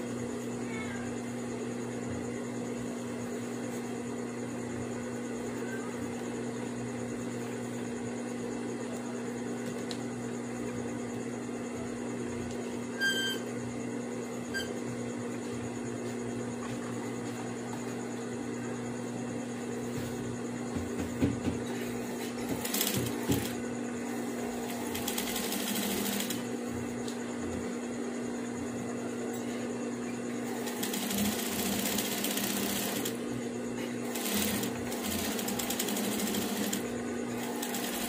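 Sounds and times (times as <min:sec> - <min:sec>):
electric motor hum: 0:22.0 - 0:27.0, 0:30.3 - 0:38.0.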